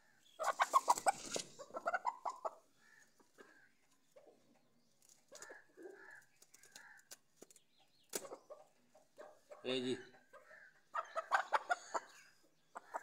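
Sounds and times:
chicken clucking: 0:00.2 - 0:07.1, 0:07.7 - 0:13.0
chicken squawking: 0:00.4 - 0:02.6, 0:10.3 - 0:12.1.

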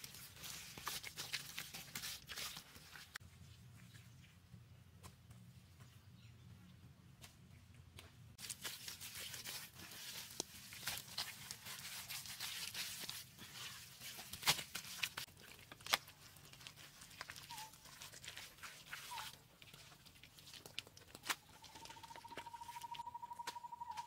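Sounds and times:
wet plaster smeared by hand: 0:00.0 - 0:03.2, 0:08.4 - 0:21.9.

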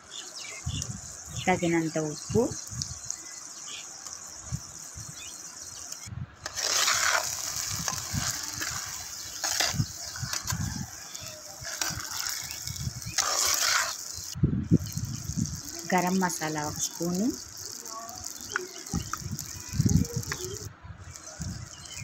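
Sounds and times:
chicken sizzling in oil: 0:00.5 - 0:22.0
metal spatula scraping pot: 0:06.4 - 0:17.8.

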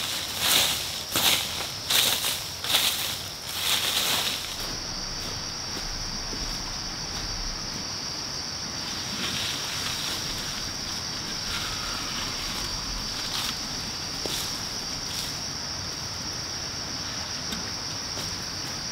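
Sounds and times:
high-pitched whine: 0:04.4 - 0:16.4.

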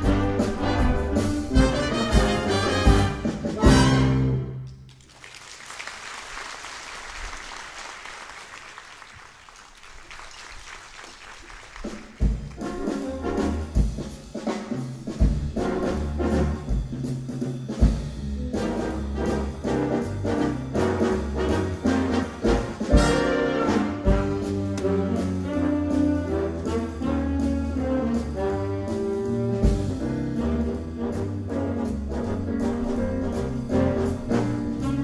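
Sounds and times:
jazz big band playing: 0:00.0 - 0:04.7, 0:11.7 - 0:35.0.

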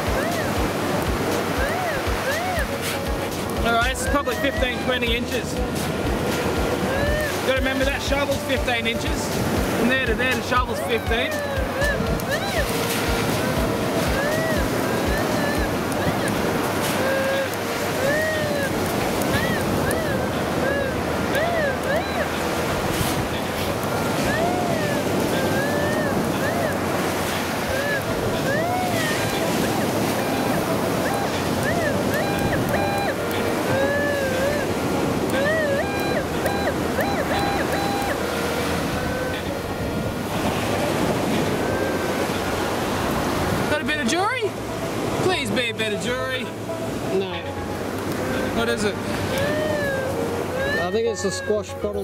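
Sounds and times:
surf: 0:00.0 - 0:52.0
wind: 0:00.0 - 0:52.0
metal detector beeps: 0:01.5 - 0:05.5, 0:19.2 - 0:26.8, 0:27.7 - 0:34.6, 0:35.2 - 0:39.6, 0:41.4 - 0:42.6
metal detector target tone: 0:28.5 - 0:34.6, 0:35.3 - 0:38.4.

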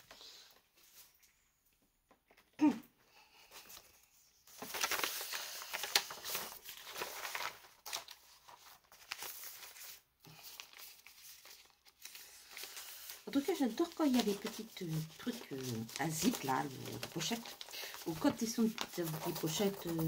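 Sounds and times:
plastic packaging crinkling: 0:04.5 - 0:20.0.

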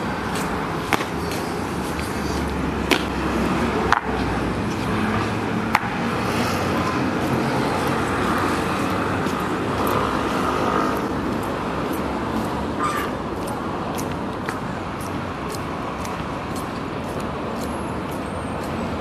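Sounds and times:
traffic: 0:00.0 - 0:19.0.

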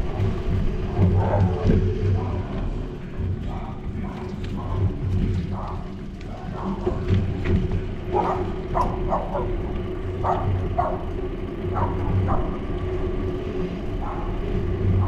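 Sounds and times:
steady low rumble: 0:00.0 - 0:15.0
dog barking: 0:05.5 - 0:07.0, 0:08.1 - 0:11.1, 0:11.7 - 0:12.6, 0:14.0 - 0:14.4.

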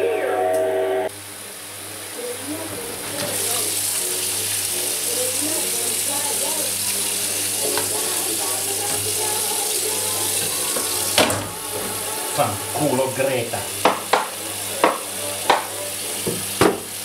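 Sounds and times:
dishes being washed: 0:02.2 - 0:17.0
tap running into metal sink: 0:13.8 - 0:16.9.

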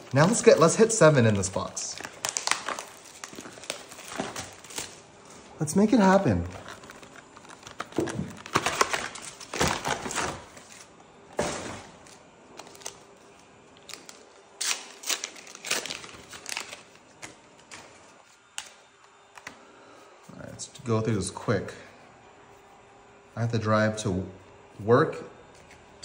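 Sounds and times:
foil packs rustling and crinkling: 0:00.0 - 0:18.8.

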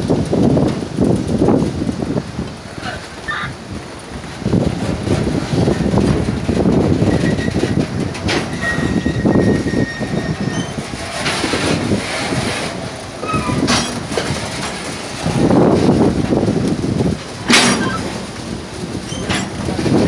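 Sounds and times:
freight train wagons rumbling: 0:00.0 - 0:20.0
high wheel squeals: 0:07.0 - 0:11.2, 0:13.2 - 0:14.0, 0:19.0 - 0:19.6.

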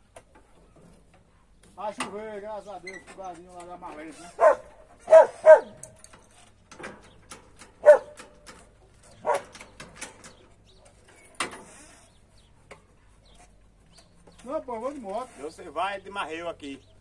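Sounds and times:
dog barking: 0:04.4 - 0:05.8, 0:07.8 - 0:08.2, 0:09.2 - 0:09.6.

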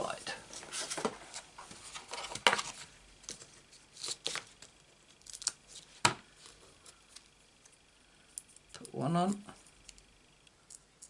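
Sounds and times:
faint paper rustling: 0:00.5 - 0:04.8.

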